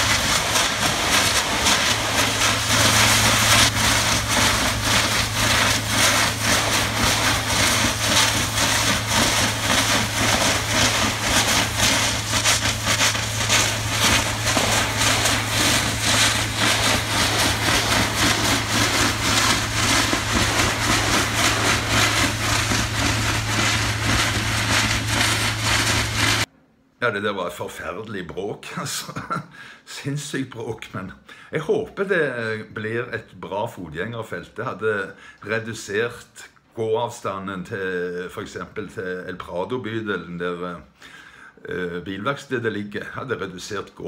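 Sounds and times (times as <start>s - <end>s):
engine hum: 0.0s - 26.5s
hydraulic breaker pounding concrete: 0.0s - 26.5s.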